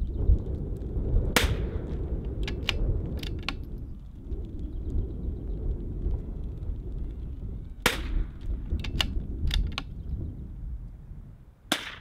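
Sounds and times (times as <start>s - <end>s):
wind rumbling on microphone: 0.0s - 12.0s
rifle shot: 1.4s - 1.8s, 7.8s - 9.2s, 11.7s - 12.0s
light rifle bolt clicks: 2.4s - 3.8s, 8.4s - 9.9s.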